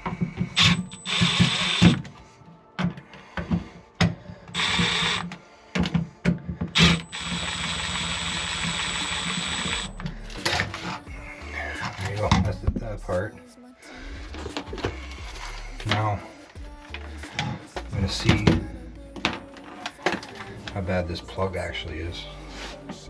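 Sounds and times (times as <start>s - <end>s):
cordless screwdriver running: 0.6s - 2.0s, 4.6s - 5.3s, 6.8s - 10.0s.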